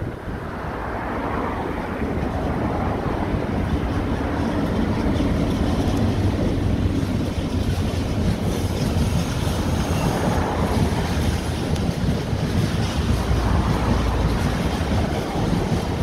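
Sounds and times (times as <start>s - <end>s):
freight train wheels rumbling: 0.0s - 16.0s.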